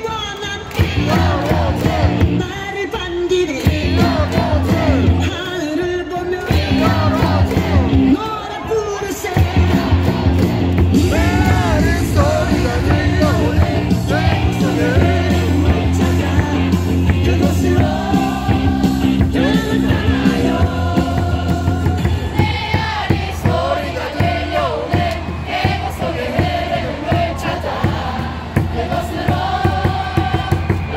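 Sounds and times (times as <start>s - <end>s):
upbeat song over sound system: 0.0s - 23.7s
crowd yelling along: 6.6s - 30.9s.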